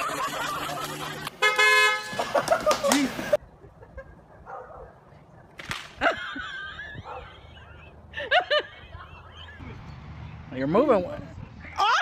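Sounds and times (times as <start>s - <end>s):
people laughing and shrieking: 0.0s - 1.3s.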